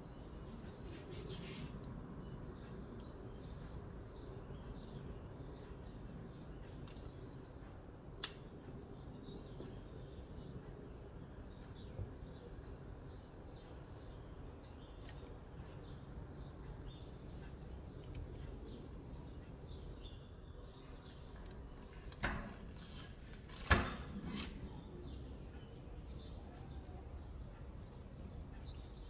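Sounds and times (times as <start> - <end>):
faint birds chirping: 0.0 - 29.0
low steady background noise: 0.0 - 29.0
sharp clicks: 8.2 - 8.6.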